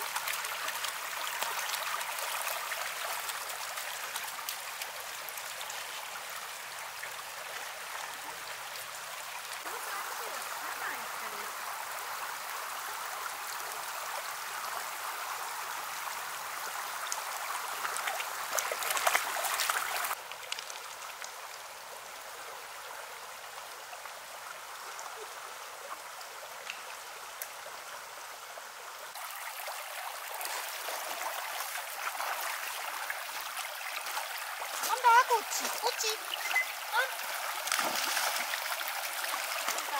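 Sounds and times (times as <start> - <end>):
stream running over stones: 0.0 - 39.9
dog splashing in water: 37.6 - 38.6.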